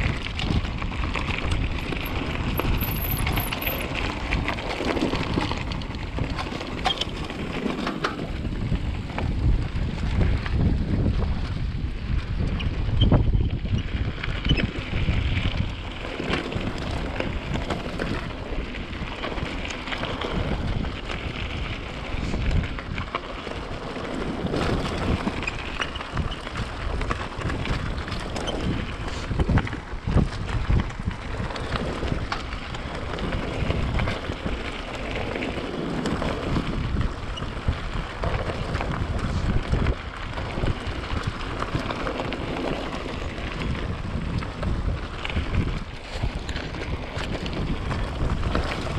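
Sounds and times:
bike rattling and knocking: 0:00.0 - 0:48.9
wind buffeting microphone: 0:00.0 - 0:48.9.

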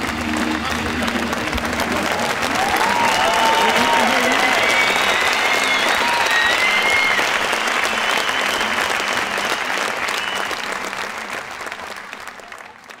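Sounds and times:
crowd applauding: 0:00.0 - 0:13.0
high whistles: 0:03.2 - 0:10.8.

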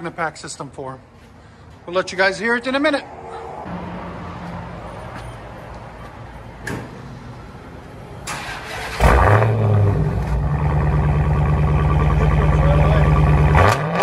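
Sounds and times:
car engine idling: 0:07.8 - 0:13.6.

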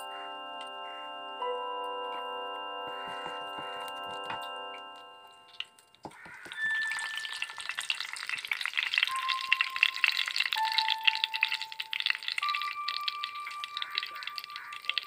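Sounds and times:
seeds sizzling in hot oil: 0:06.2 - 0:15.0.

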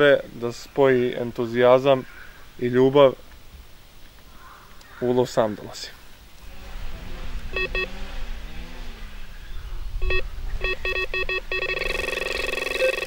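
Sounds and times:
electronic bite alarm beeping: 0:07.5 - 0:07.9, 0:10.0 - 0:13.0.

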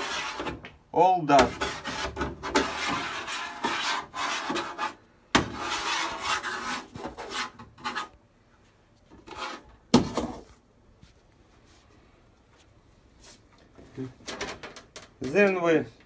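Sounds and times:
magnet scraping over metal: 0:01.4 - 0:08.2, 0:09.1 - 0:09.8.

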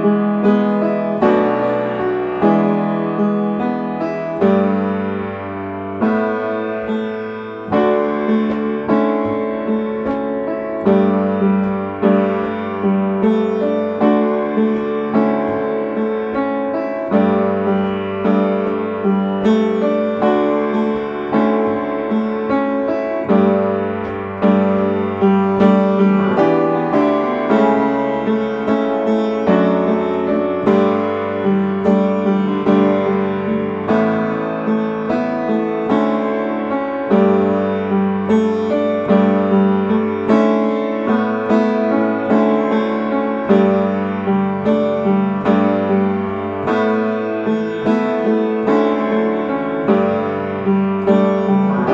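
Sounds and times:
upright piano chords: 0:00.0 - 0:51.9.

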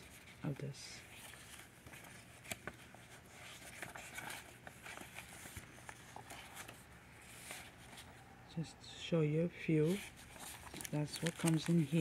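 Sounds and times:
paper sheets rustling: 0:00.0 - 0:08.2, 0:09.7 - 0:12.0.

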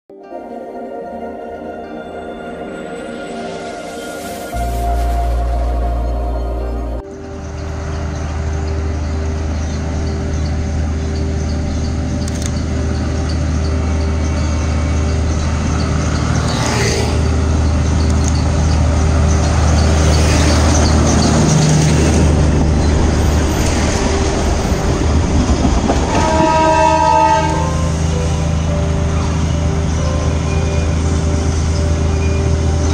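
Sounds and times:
diesel locomotive engine humming: 0:02.8 - 0:32.9
train horn: 0:24.0 - 0:29.4.

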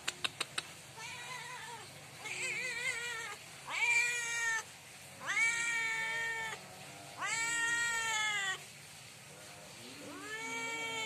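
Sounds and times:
cat meowing loudly: 0:01.0 - 0:06.6, 0:07.2 - 0:08.6, 0:10.0 - 0:11.0.

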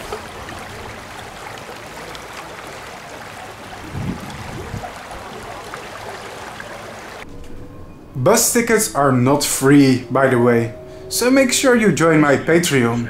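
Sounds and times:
water running over stones: 0:00.0 - 0:07.2.

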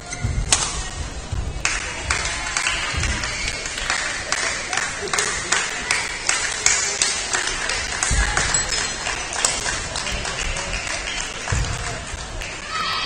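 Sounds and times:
hubbub of voices: 0:00.0 - 0:13.0
low thump: 0:02.9 - 0:03.4.

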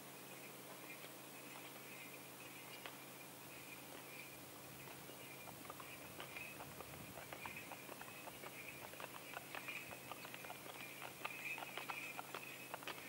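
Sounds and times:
hooves clopping on asphalt: 0:03.9 - 0:13.0.

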